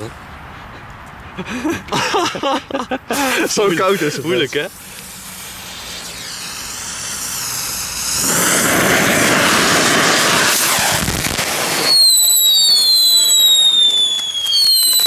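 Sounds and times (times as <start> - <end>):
fountain fireworks hissing: 3.1 - 15.0
firework whistles falling in pitch: 5.9 - 15.0.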